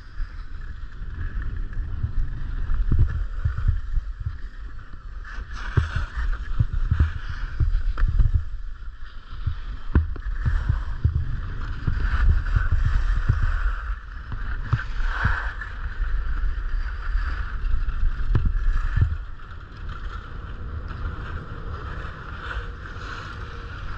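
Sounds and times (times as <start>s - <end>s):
wind buffeting microphone: 0.0s - 23.9s
low thumps from bumps: 9.4s - 13.5s.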